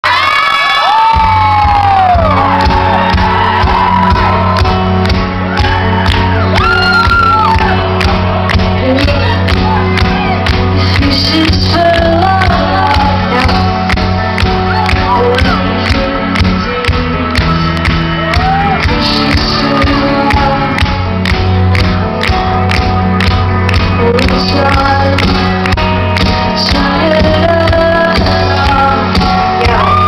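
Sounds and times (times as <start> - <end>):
fans whooping and shouting: 0.0 - 10.7, 13.4 - 15.8, 18.2 - 19.0, 29.4 - 30.0
live synth-pop band playing: 0.0 - 30.0.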